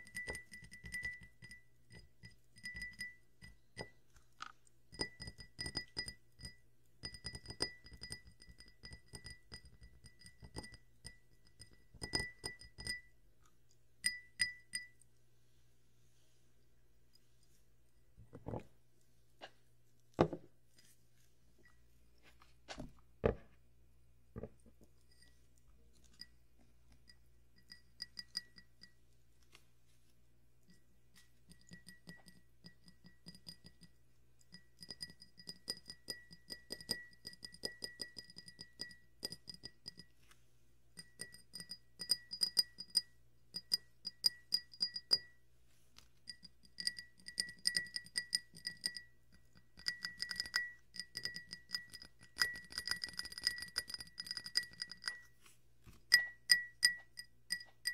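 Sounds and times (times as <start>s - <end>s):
fingers tapping drinking glass: 0.0s - 13.2s, 14.0s - 15.0s, 27.0s - 29.0s, 31.2s - 40.1s, 41.0s - 45.4s, 46.3s - 55.3s, 56.1s - 57.9s.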